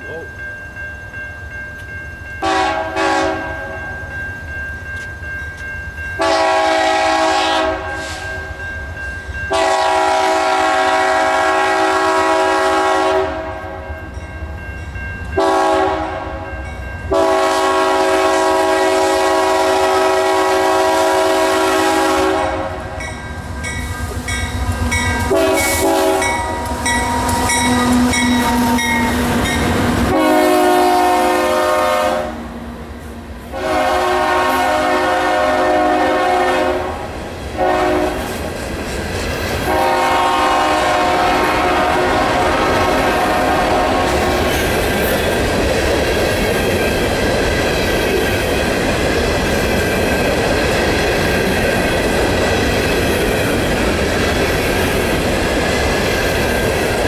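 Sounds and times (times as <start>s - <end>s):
train wheel noise: 0.0s - 57.0s
train air horn blasts: 2.4s - 3.8s, 6.2s - 8.5s, 9.5s - 13.8s, 15.4s - 16.4s, 17.1s - 23.0s, 24.0s - 29.3s, 30.0s - 32.6s, 33.5s - 38.3s, 39.7s - 44.4s.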